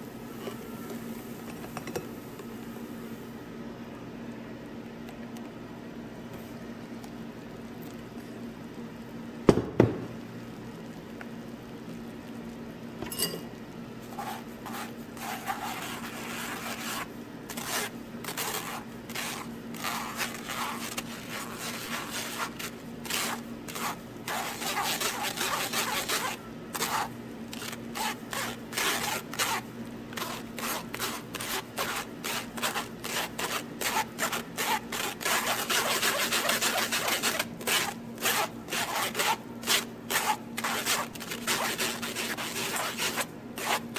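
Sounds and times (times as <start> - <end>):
sharp knock: 9.5 - 10.1
utensil scraping metal mesh sieve: 14.1 - 43.9.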